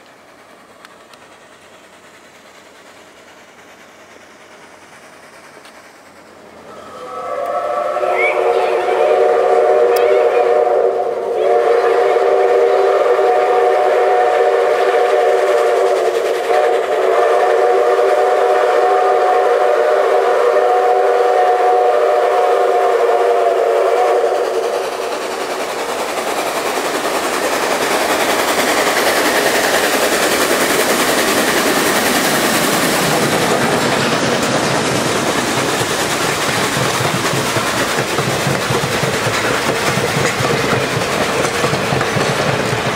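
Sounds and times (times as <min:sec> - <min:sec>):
train passing close by: 0:00.0 - 0:42.9
steam whistle blasts: 0:06.7 - 0:24.8.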